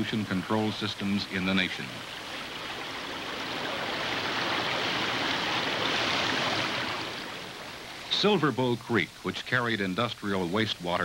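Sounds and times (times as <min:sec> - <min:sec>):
water splashing into pond: 0:00.0 - 0:07.9.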